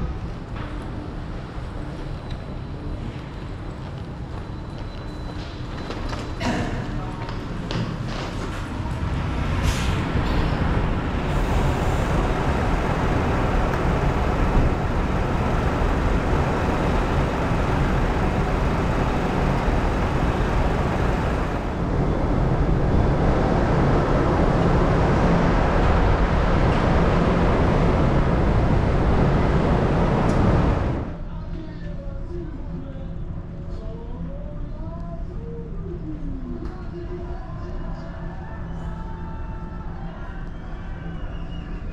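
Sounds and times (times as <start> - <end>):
outdoor rumble and hiss: 0.0 - 41.9
low hum: 9.1 - 31.2.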